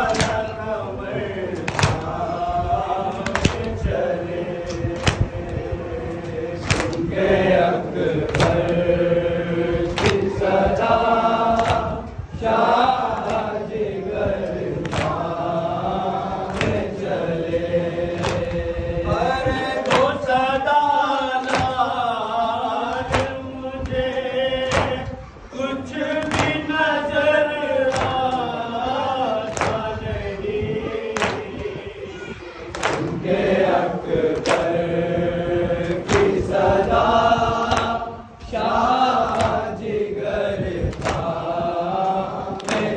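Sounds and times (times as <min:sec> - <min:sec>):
men chanting in unison: 0:00.0 - 0:42.9
person reciting into a microphone: 0:00.0 - 0:42.9
hands beating chests: 0:01.6 - 0:02.2, 0:06.6 - 0:07.1, 0:21.4 - 0:21.8, 0:24.6 - 0:25.1, 0:29.5 - 0:29.9.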